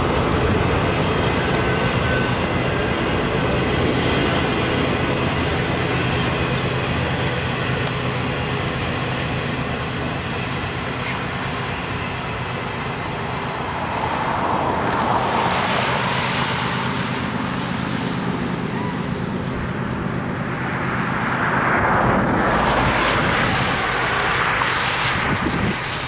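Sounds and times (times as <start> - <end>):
train rumbling on rails: 0.0 - 26.0
road vehicle passing: 20.2 - 25.8.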